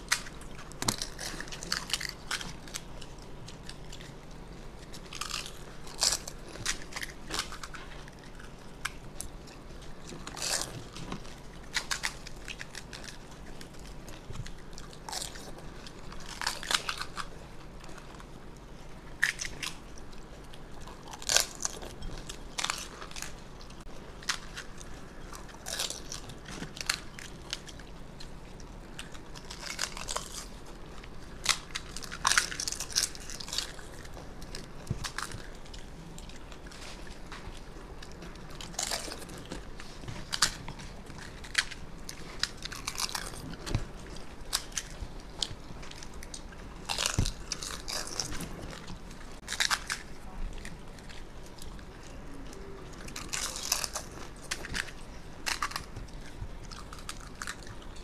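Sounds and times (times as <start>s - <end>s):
chewing: 0.0s - 58.0s
crisp shells crunching: 29.0s - 51.9s, 52.5s - 58.0s.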